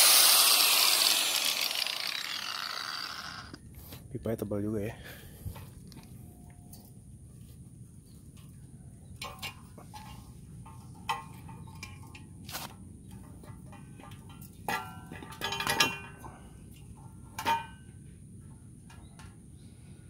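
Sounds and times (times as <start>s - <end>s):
metal exhaust pipe clanking: 9.2s - 18.0s.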